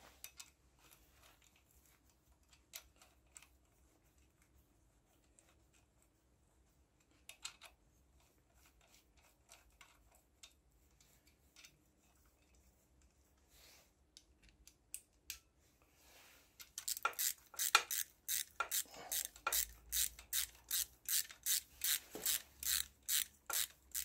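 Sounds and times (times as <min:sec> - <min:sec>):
ratchet wrench clicking: 0:16.8 - 0:24.0.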